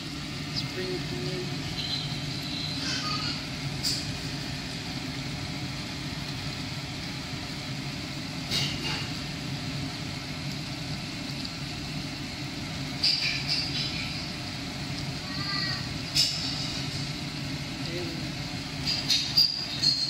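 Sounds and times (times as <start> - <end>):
low mechanical kitchen hum: 0.0 - 20.0.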